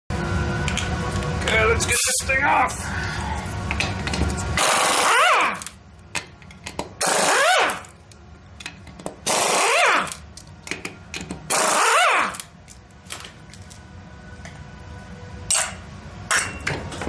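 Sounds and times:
impact wrench winding down whine: 4.6s - 5.8s, 7.0s - 8.0s, 9.2s - 10.2s, 11.5s - 12.6s.

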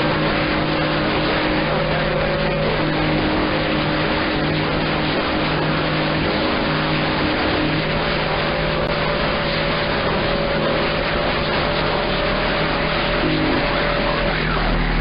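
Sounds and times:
radio static hiss and rumble: 0.0s - 15.0s.

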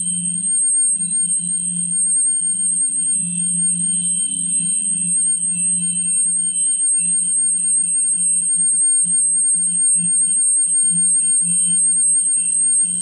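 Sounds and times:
high-pitched electronic whine: 0.0s - 13.0s.

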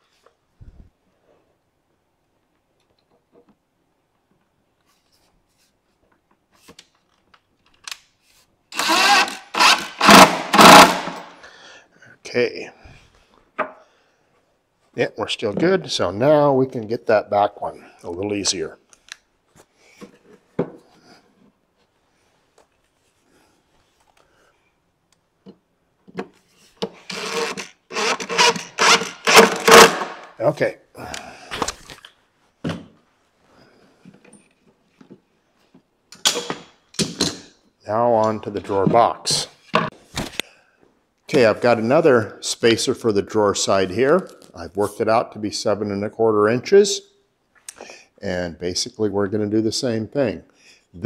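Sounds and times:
cordless drill motor running: 8.8s - 11.2s, 27.0s - 30.0s.

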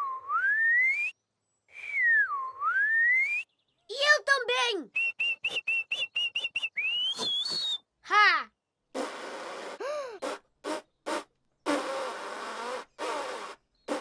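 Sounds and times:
cartoon whistling: 5.0s - 7.8s.

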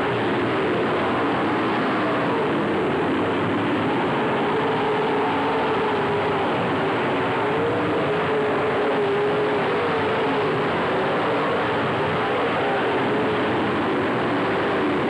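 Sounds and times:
race car engines running: 0.0s - 15.0s.

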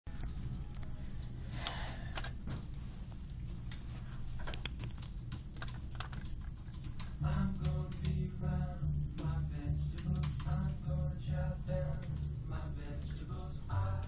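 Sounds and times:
typing on a computer keyboard: 4.4s - 8.4s, 9.2s - 10.9s, 11.8s - 13.2s.

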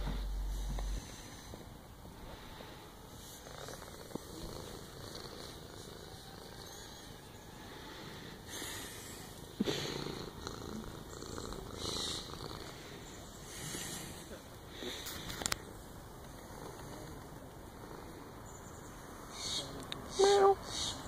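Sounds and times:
cat purring: 2.4s - 7.2s, 8.5s - 14.3s.

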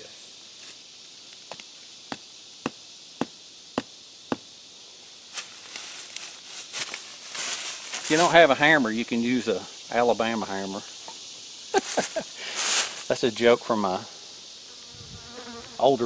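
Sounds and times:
footsteps in dry leaves: 5.3s - 8.5s, 11.8s - 13.0s.

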